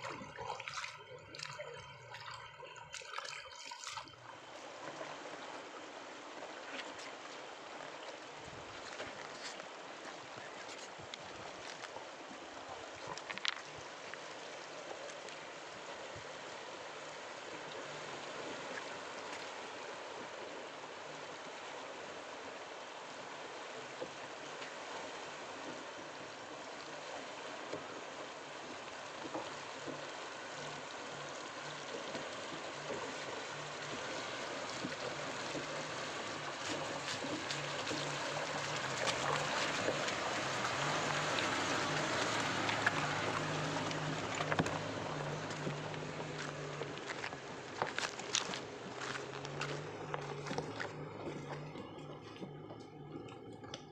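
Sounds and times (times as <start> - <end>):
river running over stones: 0.0 - 53.9
water splashing around wheels: 0.0 - 53.9
vehicle engine: 29.3 - 53.9.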